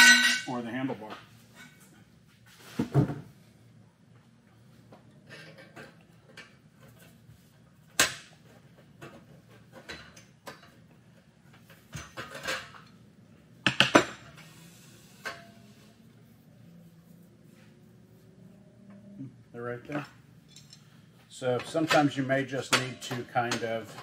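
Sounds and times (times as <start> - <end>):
metal clinking and clacking: 19.9 - 21.0.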